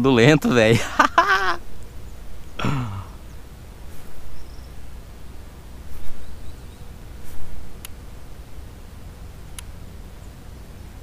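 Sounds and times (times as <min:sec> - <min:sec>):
man sighing: 0:02.6 - 0:03.2
faint clicks: 0:07.8 - 0:08.0, 0:09.5 - 0:09.8.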